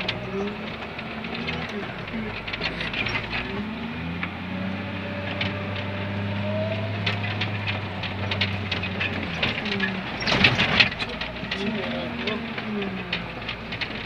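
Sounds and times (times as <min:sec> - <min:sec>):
diesel engine running: 0:00.0 - 0:14.0
machine rattling and clanking: 0:00.0 - 0:14.0.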